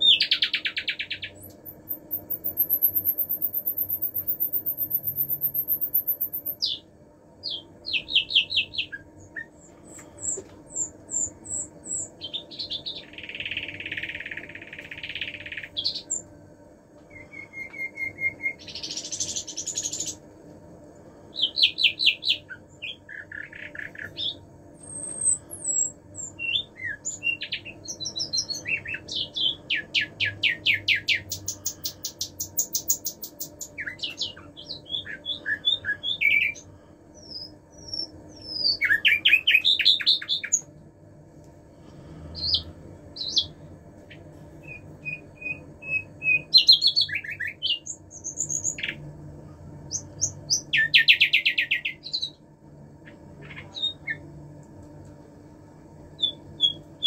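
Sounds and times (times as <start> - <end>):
nightingale singing: 0.0 - 16.3, 17.1 - 20.2, 21.3 - 40.7, 42.4 - 49.1, 49.9 - 52.4, 53.0 - 54.3, 56.2 - 57.0.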